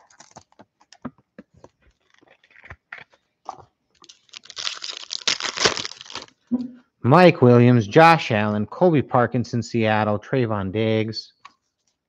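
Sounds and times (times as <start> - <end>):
foil wrapper ripping: 0.0 - 0.6, 4.0 - 6.4
foil wrapper crinkling: 0.0 - 3.3, 3.9 - 6.4.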